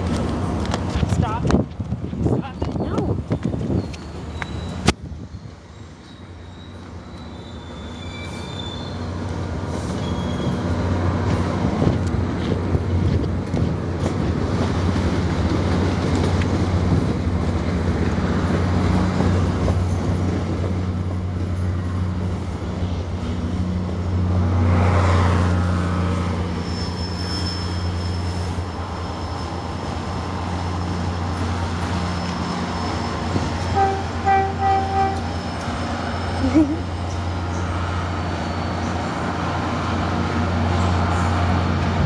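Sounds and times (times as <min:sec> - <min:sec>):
diesel locomotive engine drone: 0:00.0 - 0:42.0
train coaches rumbling: 0:00.0 - 0:42.0
train horn toots: 0:33.6 - 0:35.4.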